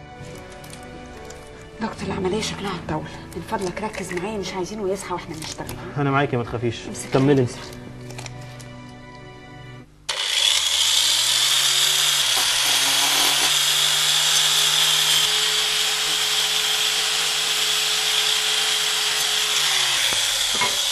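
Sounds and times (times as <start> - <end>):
angle grinder cutting metal rod: 10.1 - 20.9.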